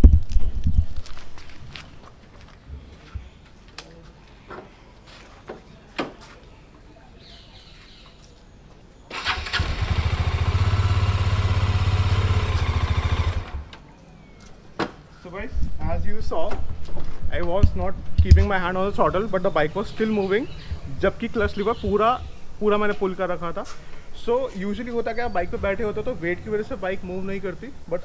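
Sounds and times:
motorcycle engine starting and running: 0:09.1 - 0:13.8.

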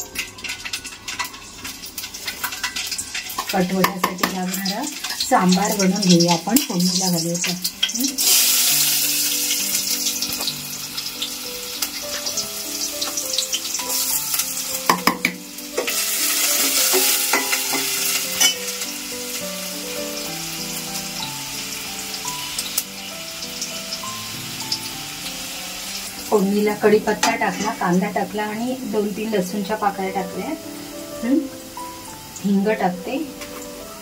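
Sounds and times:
food sizzling in hot oil: 0:00.0 - 0:34.0
spoon clinking against pot: 0:14.9 - 0:18.7.

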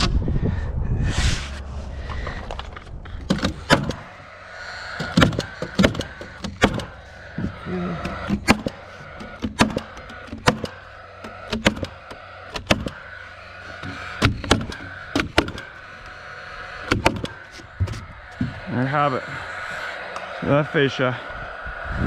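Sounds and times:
nail gun firing: 0:03.3 - 0:04.0, 0:05.0 - 0:06.9, 0:08.3 - 0:08.8, 0:09.4 - 0:10.8, 0:11.5 - 0:13.0, 0:14.2 - 0:15.6.

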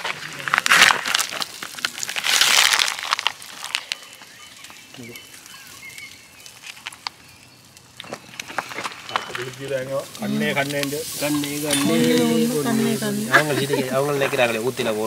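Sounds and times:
plastic film crinkling: 0:00.0 - 0:07.2.

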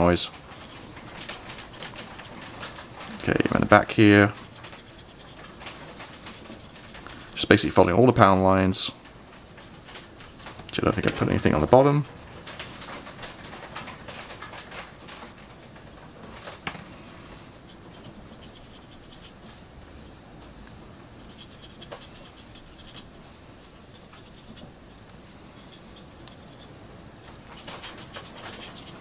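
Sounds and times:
paintbrush scratching: 0:00.6 - 0:07.8, 0:17.5 - 0:19.6, 0:20.4 - 0:29.0.

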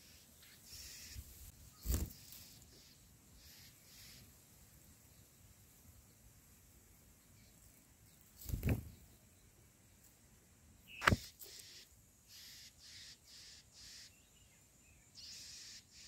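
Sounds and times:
nestlings begging calls: 0:00.0 - 0:04.3, 0:10.9 - 0:14.3, 0:15.2 - 0:16.0
sharp click: 0:11.0 - 0:11.3.

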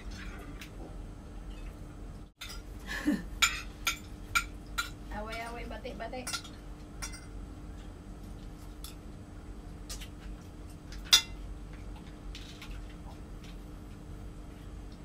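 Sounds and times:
cutlery clinking on plates: 0:06.2 - 0:07.3.

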